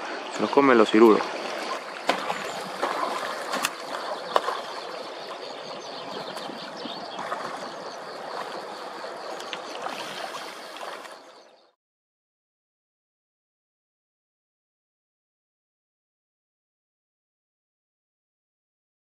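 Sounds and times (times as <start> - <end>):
river water rushing: 0.0 - 11.4.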